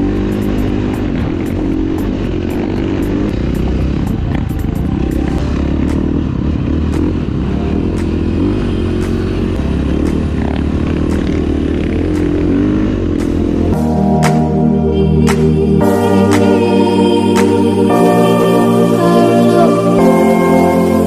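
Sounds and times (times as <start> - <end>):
sharp ticks: 0.0 - 14.6
dirt bike engine revving: 0.0 - 21.0.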